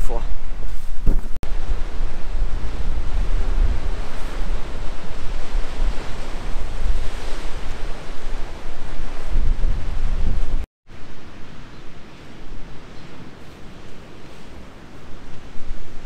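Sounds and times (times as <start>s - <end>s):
wind buffeting microphone: 0.1s - 16.0s
surf breaking on rocks: 1.4s - 10.6s.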